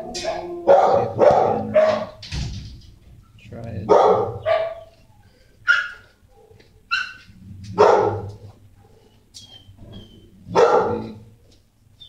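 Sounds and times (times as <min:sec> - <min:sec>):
dog barking: 0:00.0 - 0:02.2, 0:03.9 - 0:05.0, 0:05.6 - 0:09.0, 0:10.5 - 0:11.3.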